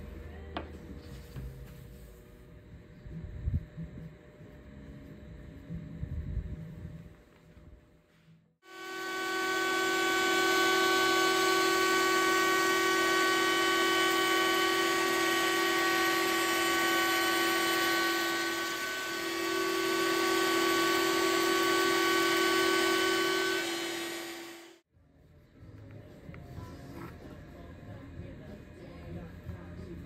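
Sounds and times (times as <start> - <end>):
router high whine: 8.6 - 24.8.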